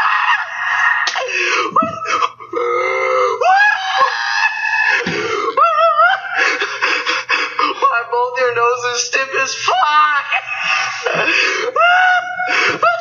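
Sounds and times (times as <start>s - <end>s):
man laughing with high squeals: 0.0s - 2.5s, 3.4s - 7.8s.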